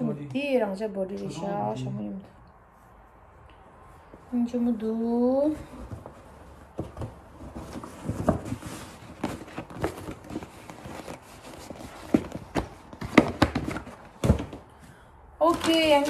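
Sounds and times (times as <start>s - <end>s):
paper packaging rustling: 5.7s - 14.7s, 15.4s - 16.0s.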